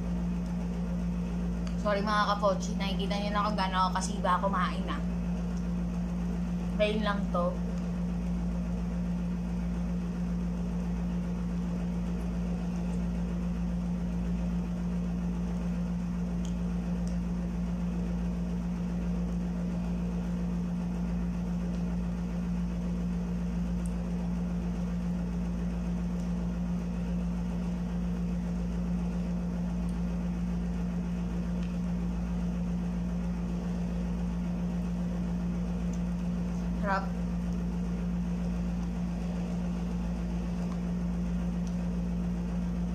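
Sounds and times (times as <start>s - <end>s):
air conditioner humming: 0.0s - 42.9s.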